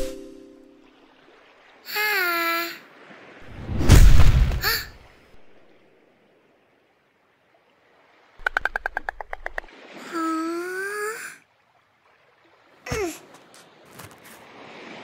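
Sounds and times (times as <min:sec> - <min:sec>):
loud deep thud: 0:03.5 - 0:04.6.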